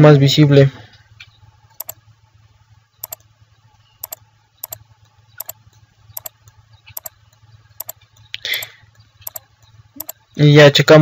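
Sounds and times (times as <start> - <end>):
faint low hum: 0.0 - 11.0
computer mouse clicking: 1.8 - 2.0, 3.0 - 3.3, 4.0 - 10.4.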